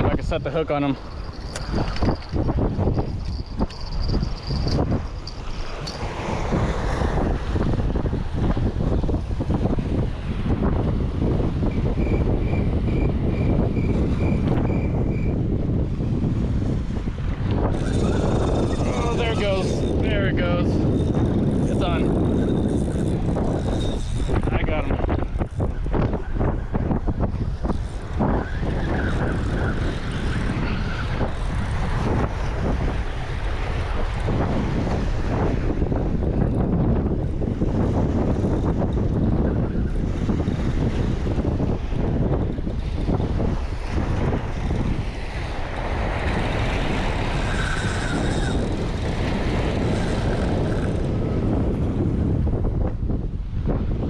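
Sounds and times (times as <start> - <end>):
wind buffeting the microphone: 0.0 - 54.0
waves washing against rocks: 16.7 - 26.1.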